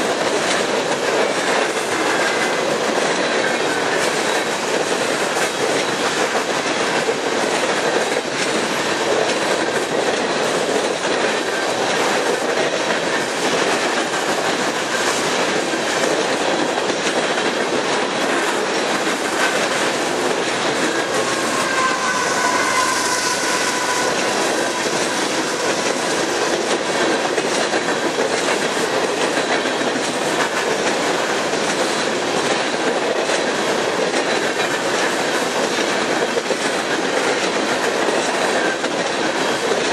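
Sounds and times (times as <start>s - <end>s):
train wheels clattering on rails: 0.0s - 39.9s
faint high squeal: 21.1s - 26.1s.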